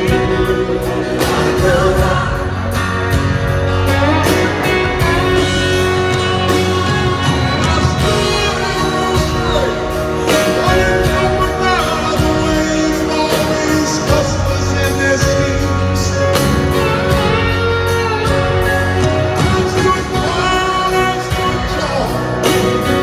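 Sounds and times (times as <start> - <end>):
acoustic guitar: 0.0 - 23.0
drums and band: 0.0 - 23.0
man singing: 0.0 - 23.0.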